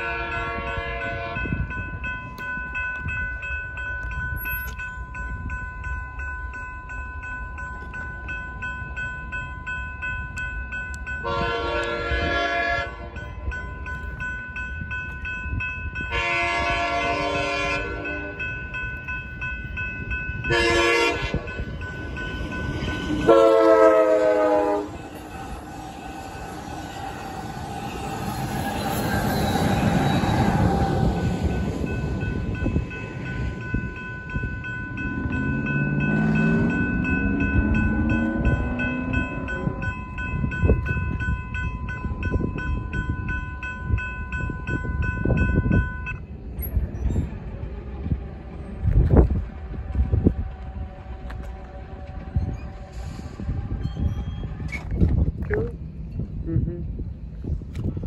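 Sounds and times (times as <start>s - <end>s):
train horn blowing: 0.0s - 1.7s, 11.2s - 13.2s, 16.1s - 18.4s, 20.5s - 21.5s, 22.9s - 25.1s
crossing bell ringing: 0.0s - 54.6s
train rumble and wheel noise: 0.0s - 58.0s.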